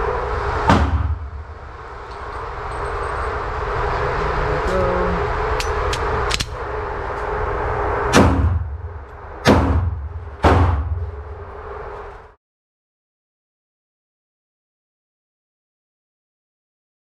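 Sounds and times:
steady background hum: 0.0 - 12.4
pistol shots indoors: 0.6 - 1.2, 8.1 - 8.6, 9.4 - 11.1.

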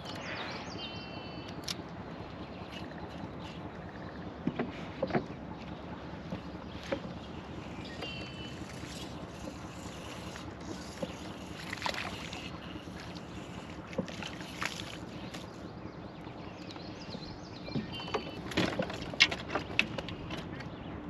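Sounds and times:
water wash: 5.7 - 15.6.

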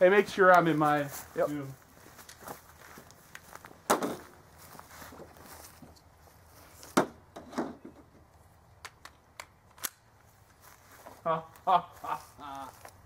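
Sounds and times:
handgun clicks: 8.8 - 10.0.

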